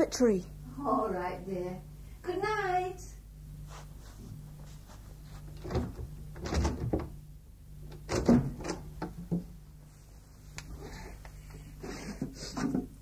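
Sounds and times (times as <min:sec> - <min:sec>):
tape hum and hiss: 0:00.0 - 0:13.0
wooden door knocks and thuds: 0:05.6 - 0:07.2, 0:08.0 - 0:09.5.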